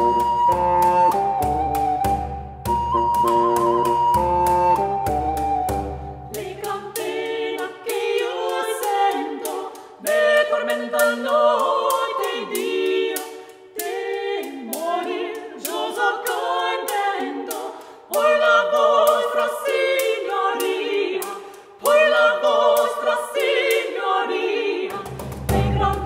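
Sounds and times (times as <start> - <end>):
women singing in harmony: 0.0 - 26.0
singers breathing: 9.7 - 10.0, 13.3 - 13.7, 17.7 - 18.1, 21.4 - 21.8.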